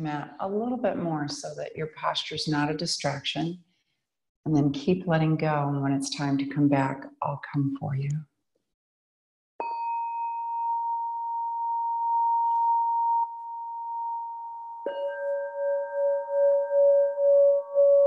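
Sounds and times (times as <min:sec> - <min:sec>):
higher-pitched singing bowl ringing: 0:09.6 - 0:18.0
lower-pitched singing bowl pulsing: 0:09.6 - 0:18.0.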